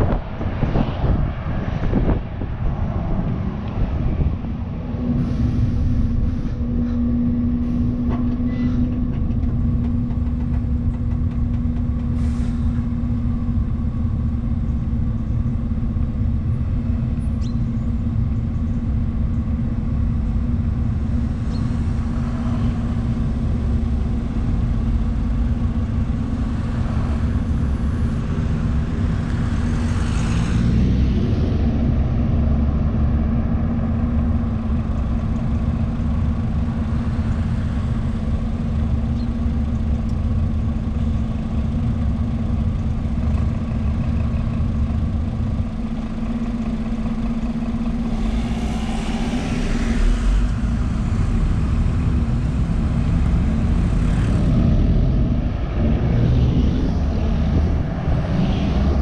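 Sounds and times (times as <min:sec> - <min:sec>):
bus diesel engine idling: 0:04.6 - 0:29.6, 0:32.4 - 0:54.3
car passing: 0:24.9 - 0:33.8, 0:47.0 - 0:59.0.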